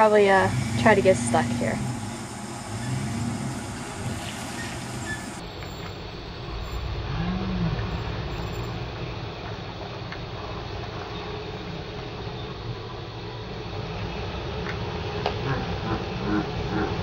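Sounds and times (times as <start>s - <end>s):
pickup truck engine revving: 0.0s - 5.4s.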